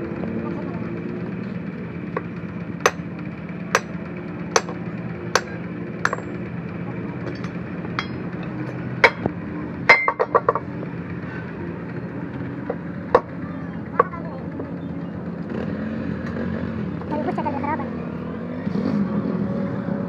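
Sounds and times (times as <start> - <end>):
steady low hum: 0.0 - 15.4
hammer striking steel: 2.8 - 3.1, 3.7 - 6.5, 7.3 - 10.6
metal clinks rattling: 7.3 - 9.2.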